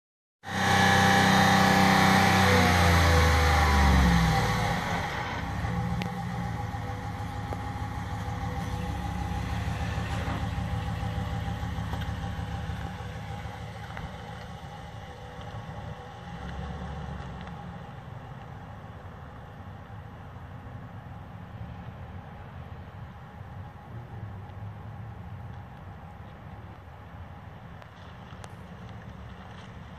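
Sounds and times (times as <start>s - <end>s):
pickup truck engine running: 0.5s - 20.5s.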